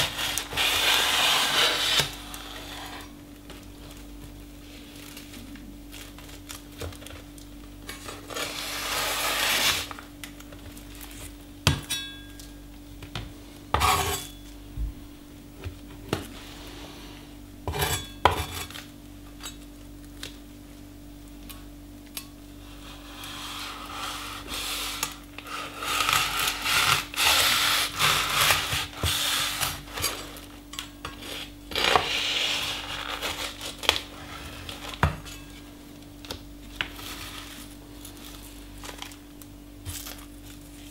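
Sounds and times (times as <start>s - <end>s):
knife slicing paper and foil: 0.0s - 2.9s, 8.0s - 10.0s, 23.4s - 30.4s, 31.1s - 35.0s.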